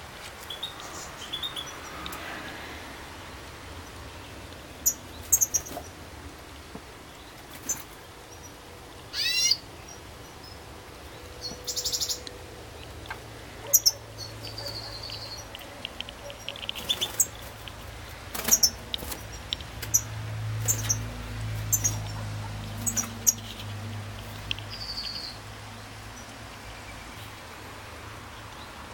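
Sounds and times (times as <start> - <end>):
goldfinches chirping and twittering: 3.8 - 6.0, 7.1 - 13.0, 13.6 - 27.4.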